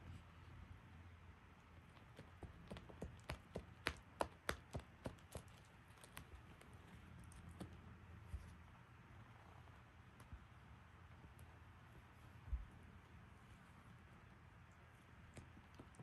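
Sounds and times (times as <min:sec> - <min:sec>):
cat clawing at a toy: 0:01.8 - 0:08.7.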